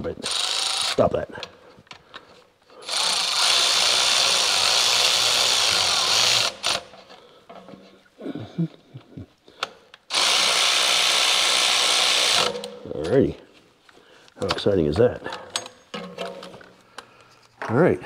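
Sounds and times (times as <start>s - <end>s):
cordless electric ratchet running: 0.2s - 1.0s, 2.8s - 6.9s, 10.1s - 12.7s.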